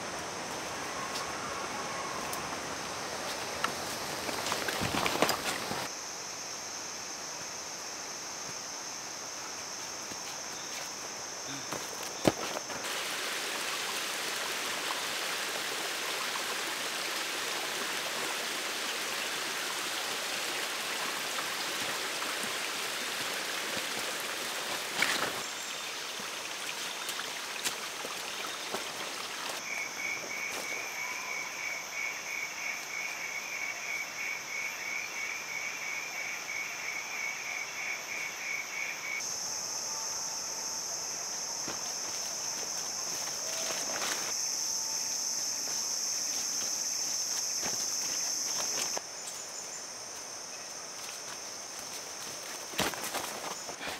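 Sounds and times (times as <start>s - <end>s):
high insect buzz: 0.0s - 53.9s
rushing hiss: 8.6s - 29.6s.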